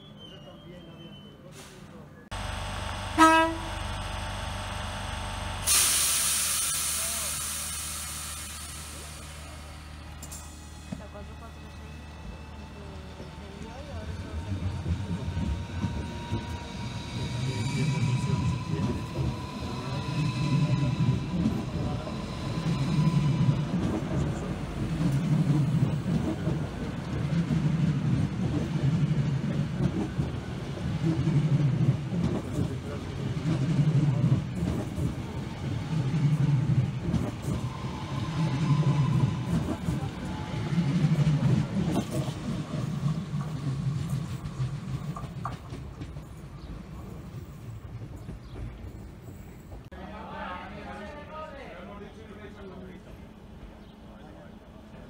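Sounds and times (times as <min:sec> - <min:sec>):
low hum of trains: 0:00.0 - 0:55.0
pneumatic air hiss: 0:05.6 - 0:09.5.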